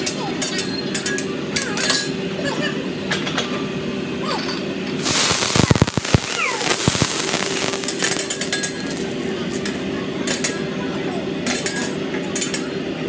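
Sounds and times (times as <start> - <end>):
low thumps of flame: 5.0 - 9.8
fire burning: 5.0 - 10.0.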